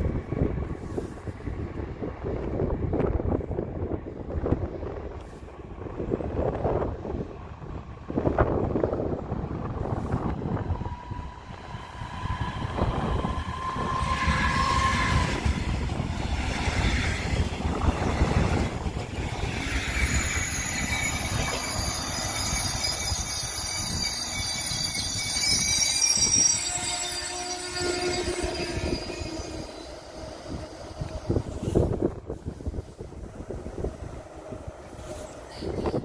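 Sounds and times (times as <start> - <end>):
train wheels rumbling on track: 0.0 - 36.0
wheels squealing on rails: 9.6 - 36.0.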